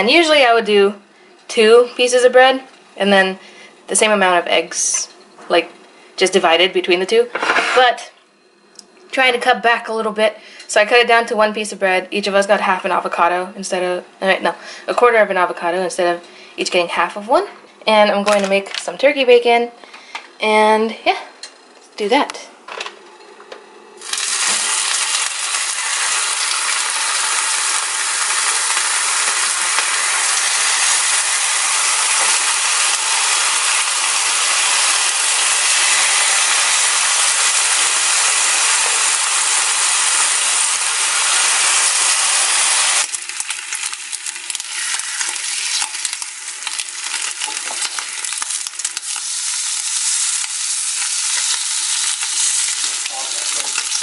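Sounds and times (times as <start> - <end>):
bacon sizzling in a frying pan: 24.0 - 54.0.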